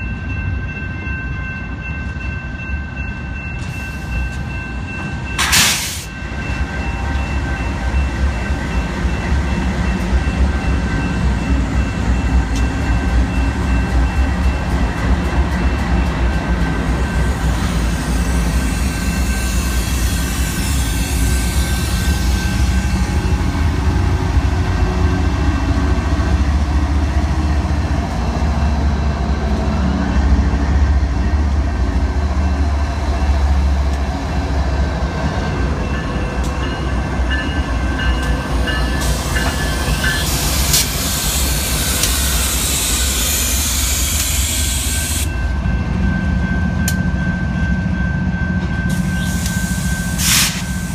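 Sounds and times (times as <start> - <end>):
diesel locomotives rumbling past: 0.0 - 50.9
loud hiss: 5.4 - 6.1, 49.1 - 50.9.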